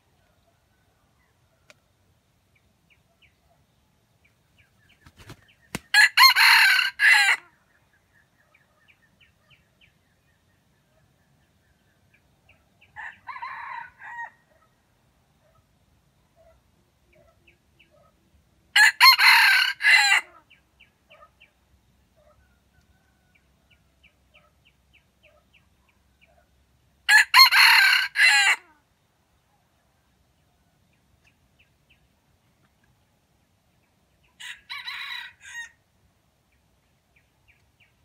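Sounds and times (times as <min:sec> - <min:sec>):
rooster crowing: 0:05.9 - 0:07.4, 0:13.0 - 0:14.5, 0:18.8 - 0:20.4, 0:27.1 - 0:28.7, 0:34.4 - 0:35.8.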